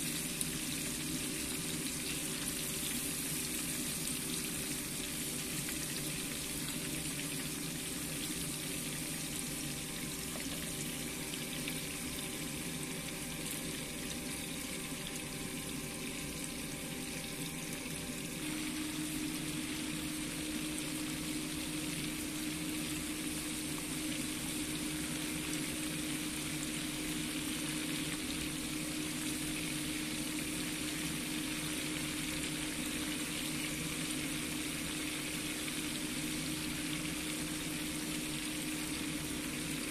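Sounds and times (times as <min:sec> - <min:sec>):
fish sizzling in hot oil: 0:00.0 - 0:39.9
steady low hum: 0:00.0 - 0:39.9.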